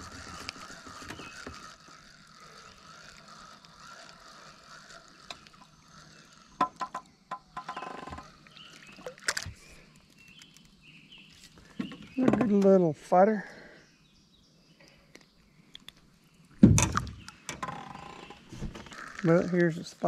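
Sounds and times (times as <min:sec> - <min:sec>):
fishing reel clicks and knocks: 0:00.3 - 0:08.3.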